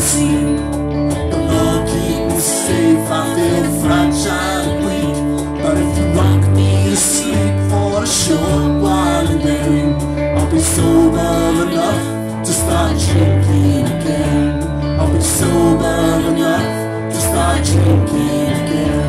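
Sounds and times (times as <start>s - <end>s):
bass line: 0.0s - 19.0s
electric guitar: 0.0s - 19.0s
live band playing: 0.0s - 19.0s.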